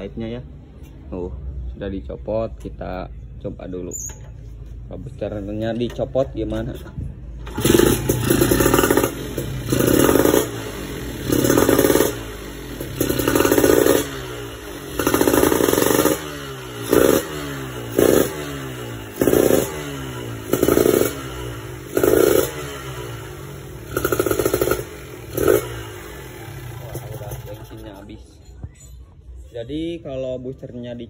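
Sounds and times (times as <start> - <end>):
motorcycle engine revving: 7.4 - 28.1.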